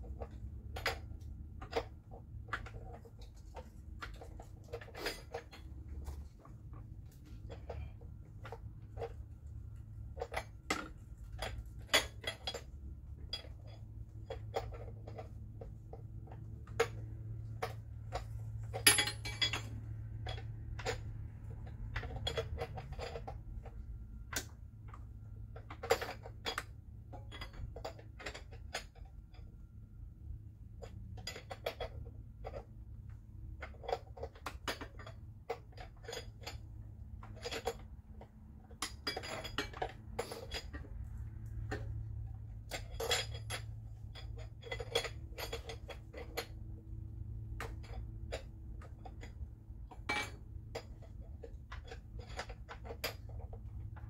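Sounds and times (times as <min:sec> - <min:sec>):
steady low hum: 0:00.0 - 0:54.0
metal wrench clinking on hardware: 0:18.7 - 0:21.1, 0:50.0 - 0:50.9.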